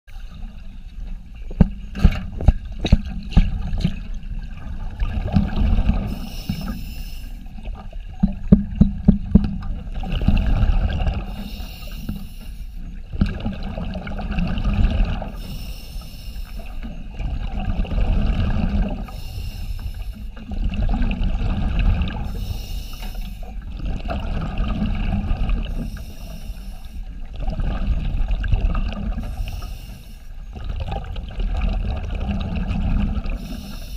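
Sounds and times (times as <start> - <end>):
bubbles rushing on exhale: 2.3 - 6.6, 9.6 - 11.4, 13.1 - 15.4, 17.1 - 19.1, 20.4 - 22.6, 23.6 - 25.9, 27.2 - 29.5, 30.5 - 33.7
regulator hiss on inhale: 6.0 - 7.6, 11.2 - 13.0, 15.3 - 17.0, 19.0 - 20.4, 22.2 - 23.6, 25.6 - 27.2, 29.2 - 30.5, 33.3 - 33.9.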